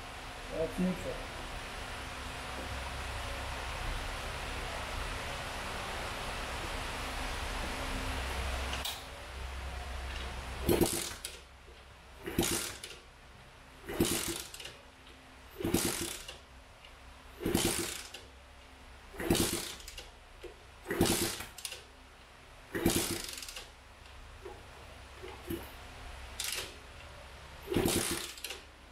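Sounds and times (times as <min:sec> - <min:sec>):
motorcycle engine kickstart cranking: 0:10.1 - 0:11.4, 0:12.2 - 0:13.0, 0:13.8 - 0:14.8, 0:15.6 - 0:16.4, 0:17.4 - 0:18.3, 0:19.2 - 0:20.1, 0:20.9 - 0:21.9, 0:22.7 - 0:23.8, 0:25.2 - 0:26.8, 0:27.6 - 0:28.7.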